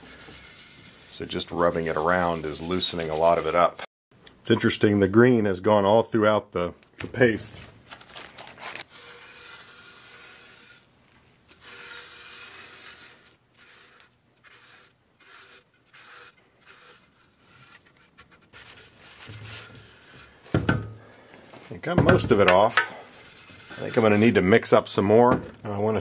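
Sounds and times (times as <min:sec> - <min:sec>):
gloved hand scrubbing metal: 0:00.0 - 0:03.7, 0:08.8 - 0:20.9, 0:21.7 - 0:26.0.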